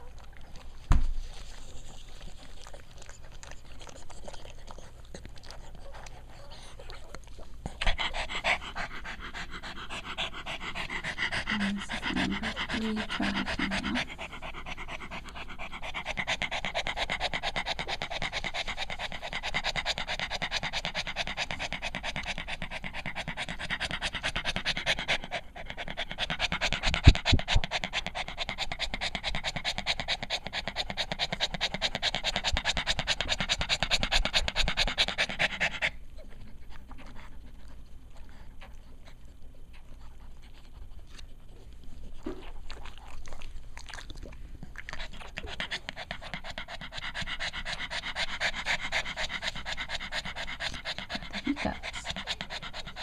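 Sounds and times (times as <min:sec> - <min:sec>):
faint rustles and clicks: 0:00.5 - 0:06.2
dog panting rapidly: 0:00.8 - 0:43.4, 0:44.8 - 0:53.0.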